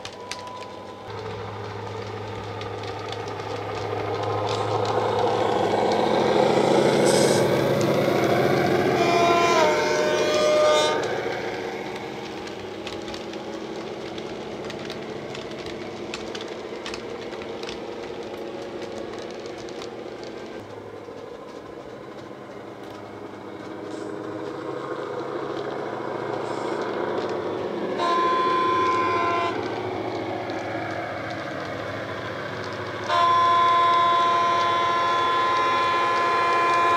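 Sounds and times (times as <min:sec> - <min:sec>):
clicking of passing train: 0:00.0 - 0:36.9
diesel engine running: 0:00.0 - 0:36.9
two-tone train horn: 0:07.0 - 0:07.6, 0:08.8 - 0:11.3, 0:27.9 - 0:29.7, 0:33.0 - 0:36.9
single-note train horn: 0:08.9 - 0:11.1, 0:28.0 - 0:29.7, 0:33.0 - 0:36.9.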